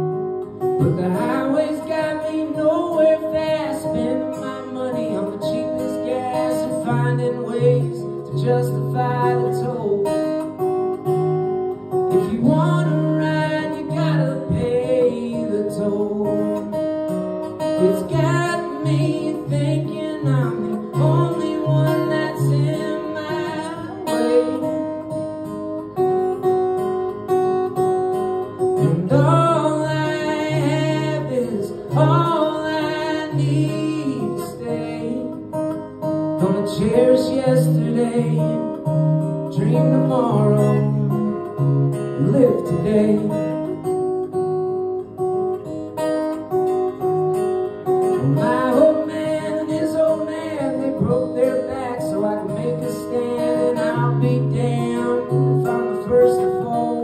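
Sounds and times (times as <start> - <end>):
acoustic guitar strumming: 0.0 - 57.0
man singing: 0.7 - 10.7, 12.0 - 25.4, 28.6 - 44.0, 47.9 - 57.0.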